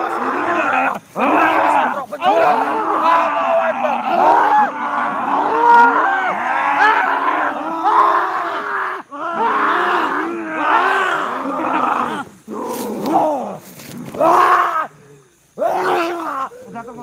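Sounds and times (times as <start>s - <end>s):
growling cries: 0.0s - 13.6s
men yelling and groaning: 0.0s - 17.0s.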